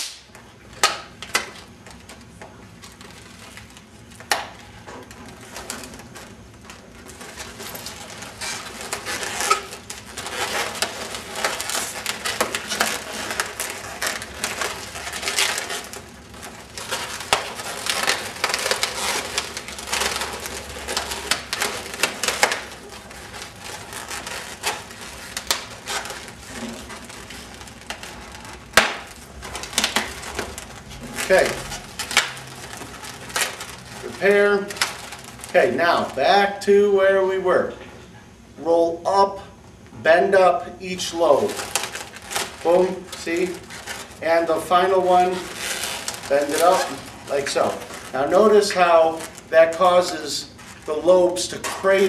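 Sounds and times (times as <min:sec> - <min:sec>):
balloon snapping: 0:00.0 - 0:01.5, 0:16.7 - 0:30.6, 0:31.2 - 0:33.6
balloons rubbing and squeaking: 0:03.0 - 0:36.3, 0:40.9 - 0:52.0.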